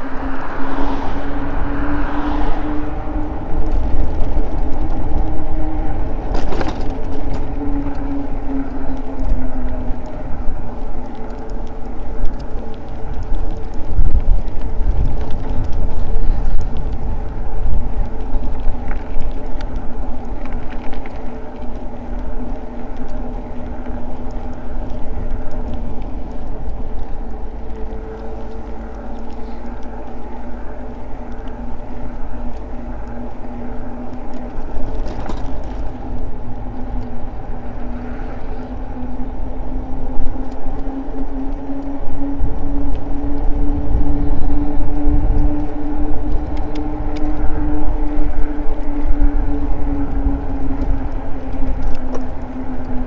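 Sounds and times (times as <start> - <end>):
electric motor whine: 0.0 - 0.5, 7.6 - 26.0, 27.9 - 36.0, 47.2 - 53.0
wind rumble on microphone: 0.0 - 53.0.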